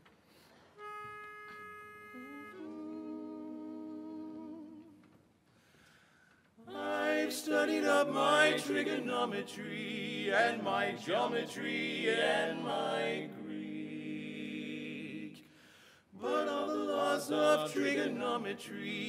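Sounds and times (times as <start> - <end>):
male quartet singing a cappella: 2.5 - 5.0, 6.7 - 19.0.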